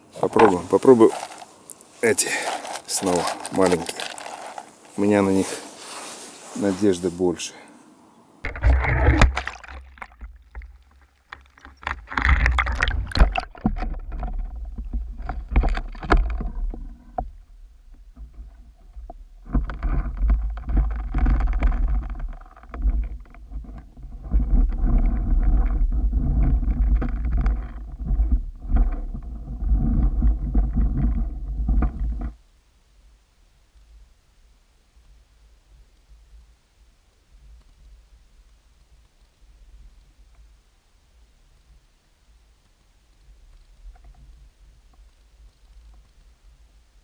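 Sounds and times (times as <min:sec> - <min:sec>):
muffled underwater rumble: 0:11.8 - 0:32.4.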